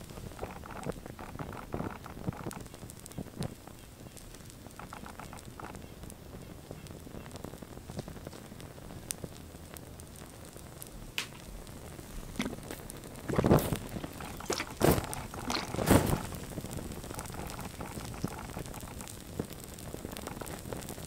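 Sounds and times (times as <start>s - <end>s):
flames whooshing: 0.0s - 21.0s
small fire crackling and popping: 0.0s - 21.0s.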